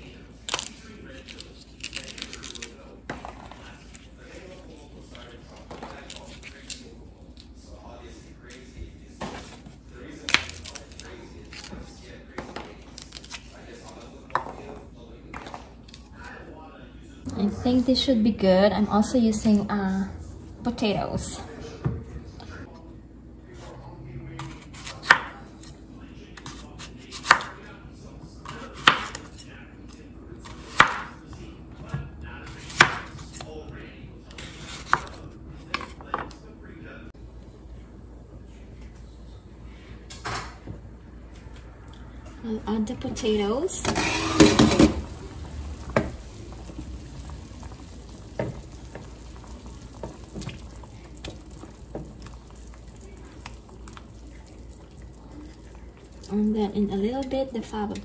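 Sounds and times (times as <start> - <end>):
potato chunks splashing into broth: 44.6 - 56.3
broth bubbling: 44.7 - 57.0.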